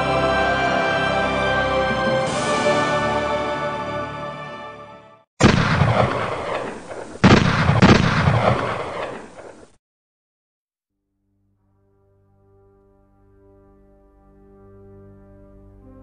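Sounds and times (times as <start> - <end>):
gunshots with rolling echo: 5.4 - 9.8.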